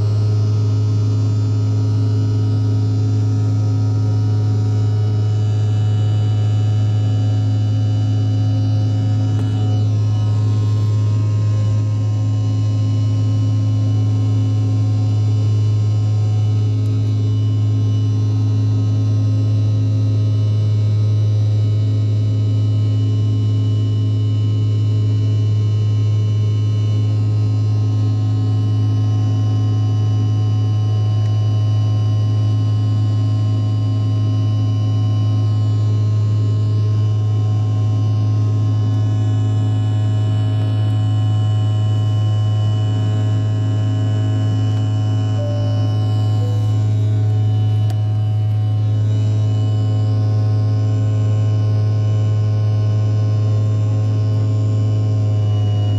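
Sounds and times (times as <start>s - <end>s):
jet airliner cabin engine drone: 3.7s - 20.0s, 37.2s - 50.9s.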